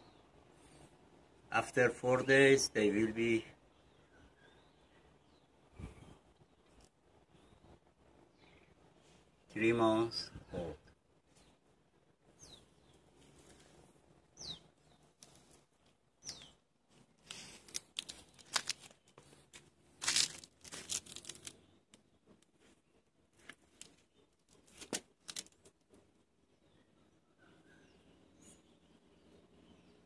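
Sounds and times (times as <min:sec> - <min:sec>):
rustling dry leaves: 0:17.0 - 0:21.7, 0:23.4 - 0:25.7.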